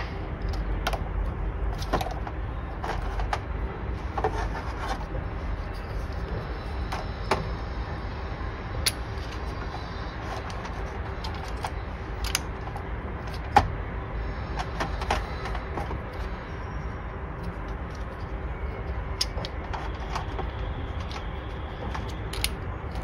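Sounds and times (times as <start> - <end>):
low background rumble: 0.0 - 23.0
plastic clicks and rattles: 19.2 - 23.0.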